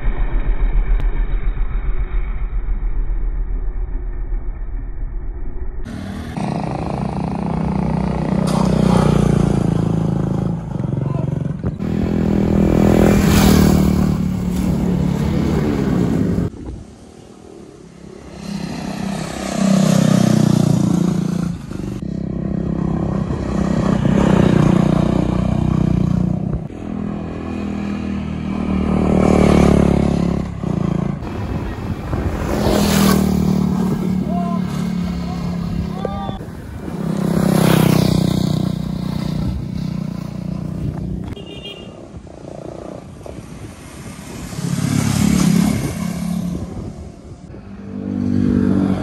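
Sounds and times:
sport motorcycles passing: 5.9s - 49.0s.

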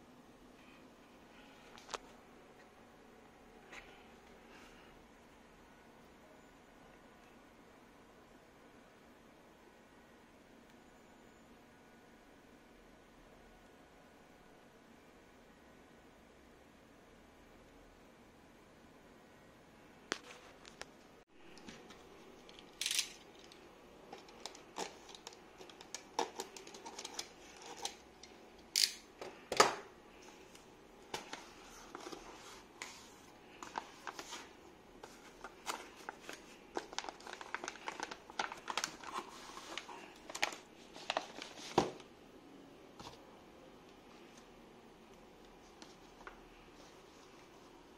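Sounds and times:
plastic bag crinkling: 35.3s - 41.7s.

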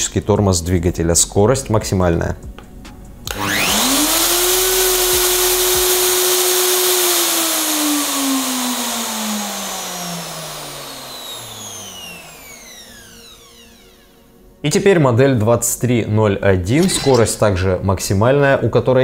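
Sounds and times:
router motor whine: 3.3s - 14.2s.

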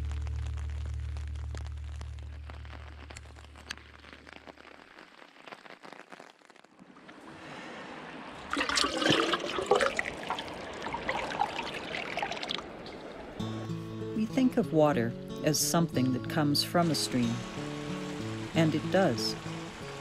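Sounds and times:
water splashing and gurgling: 2.6s - 14.5s, 15.5s - 20.0s
water rushing into bucket: 6.8s - 13.6s
stream flowing: 6.8s - 20.0s.

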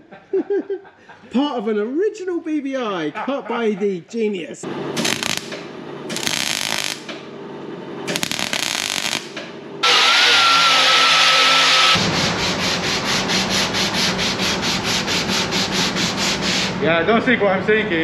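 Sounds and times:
grinder whine: 5.0s - 7.1s, 8.1s - 12.0s
welding crackle: 5.0s - 7.1s, 8.1s - 10.1s
sanding board stroking bodywork: 11.7s - 16.8s.

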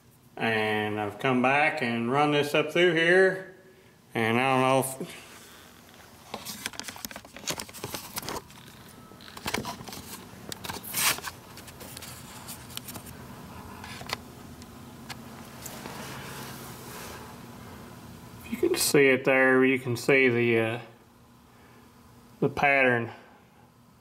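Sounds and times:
low steady hum: 0.0s - 24.0s
camera handling noise: 6.3s - 13.2s.

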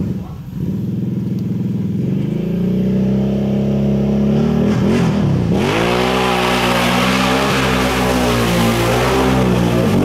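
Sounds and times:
quad bike engine revving: 0.0s - 10.0s.

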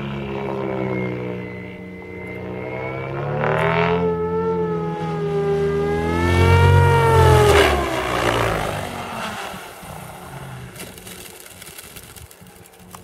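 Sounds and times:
rc helicopter motor whining: 0.0s - 4.9s, 10.7s - 13.0s
rotor blade sweep: 0.0s - 13.0s.

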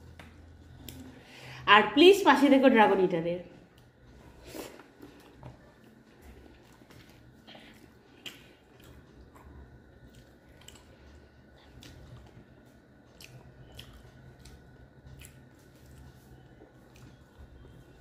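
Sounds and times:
person chewing food: 3.7s - 18.0s.

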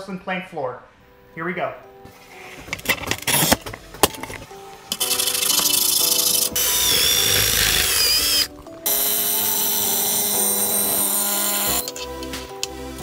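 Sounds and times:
background music: 0.0s - 13.0s
angle grinder cutting tile: 5.0s - 12.0s.

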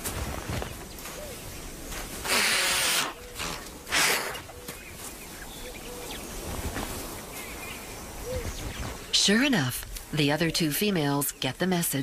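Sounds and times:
ostrich hissing harshly: 2.2s - 4.4s.

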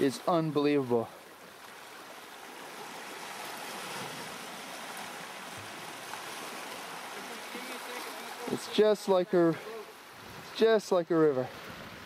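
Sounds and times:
water rushing past rocks: 0.0s - 12.0s
water splashing: 0.0s - 12.0s.

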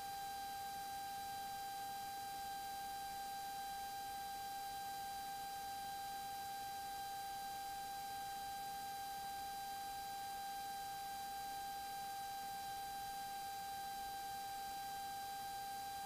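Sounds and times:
faint high electrical whine: 0.0s - 16.0s.

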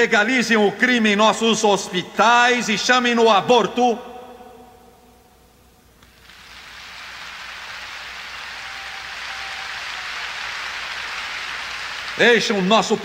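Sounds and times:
congregation applauding: 6.1s - 13.0s.

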